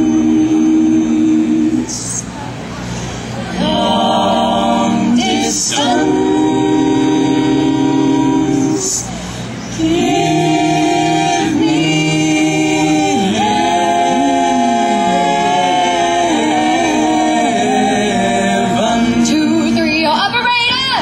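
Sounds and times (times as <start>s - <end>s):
vocal ensemble singing chords: 0.0s - 21.0s.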